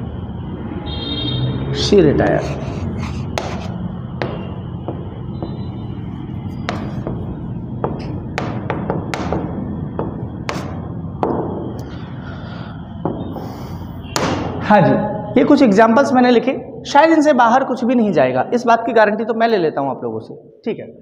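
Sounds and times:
steady low hum: 1.8s - 15.8s
pen tapping on glass screen: 3.4s - 5.8s, 6.5s - 11.6s.

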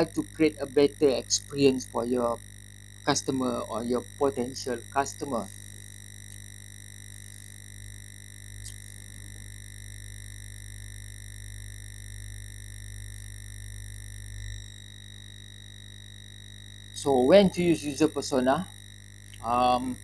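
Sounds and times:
high steady whine: 0.0s - 20.0s
low electrical hum: 0.0s - 20.0s.

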